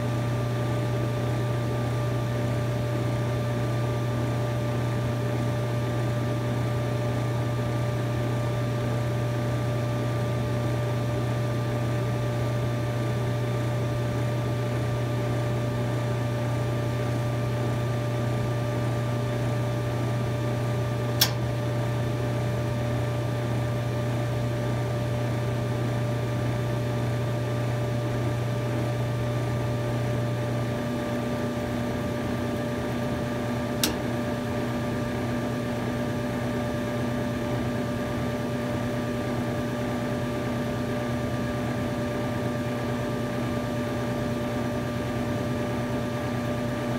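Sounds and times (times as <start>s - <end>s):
dryer motor and blower hum: 0.0s - 46.9s
sharp click: 21.2s - 21.5s, 33.8s - 34.1s.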